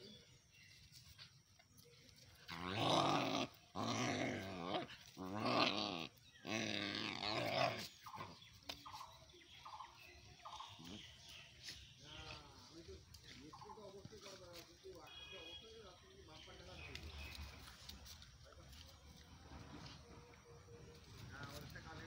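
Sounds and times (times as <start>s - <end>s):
dogs growling: 2.4s - 8.5s.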